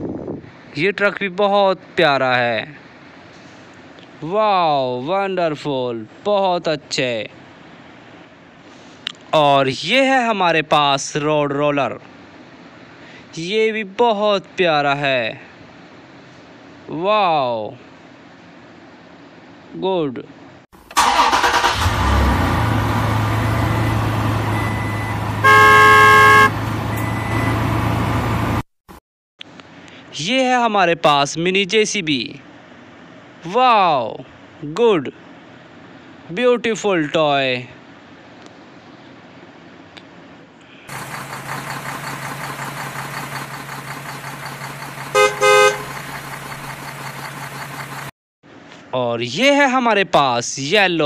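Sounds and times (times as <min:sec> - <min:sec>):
vehicle engine running: 0:21.8 - 0:28.6, 0:40.9 - 0:48.1
horn blast: 0:25.4 - 0:26.8, 0:45.1 - 0:46.0.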